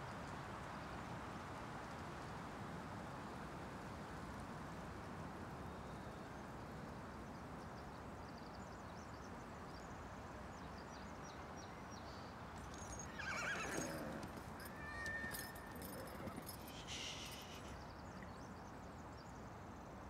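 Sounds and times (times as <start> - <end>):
forest ambience hiss: 12.2 - 19.1
faint high chirps: 12.6 - 18.3
wavering animal call: 13.1 - 17.8.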